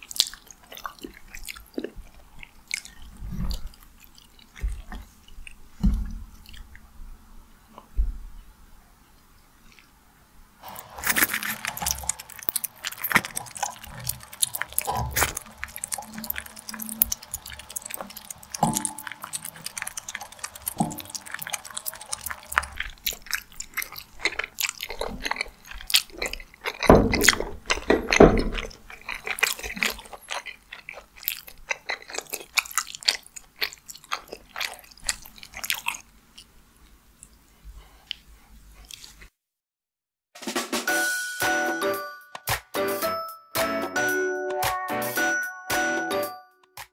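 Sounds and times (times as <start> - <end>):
wet mouth clicks and smacks: 0.0 - 5.5, 10.8 - 36.5
chewing sticky food: 0.0 - 7.0, 9.6 - 10.0, 10.6 - 39.4.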